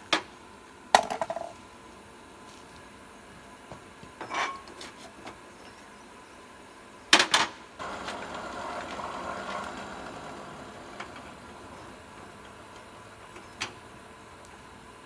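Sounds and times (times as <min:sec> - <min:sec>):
hand-cranked blower whirring: 0:07.8 - 0:13.8.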